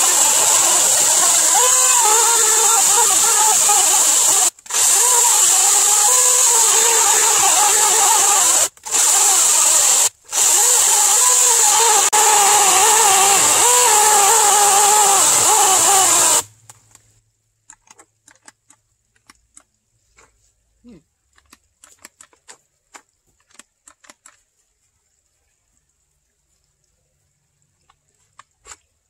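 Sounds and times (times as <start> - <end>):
electric chainsaw cutting log: 0.0 - 16.5.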